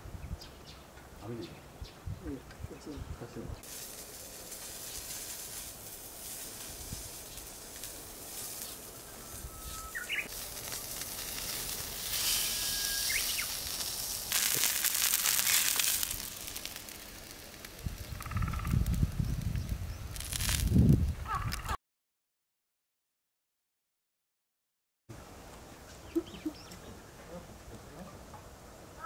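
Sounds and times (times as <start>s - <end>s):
steak sizzling on griddle: 3.6s - 20.8s.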